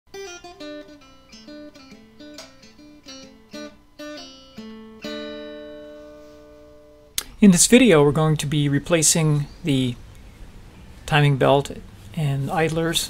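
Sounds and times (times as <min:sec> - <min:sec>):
guitar chord ringing: 0:00.1 - 0:07.4
guitar picking single notes: 0:00.1 - 0:11.4.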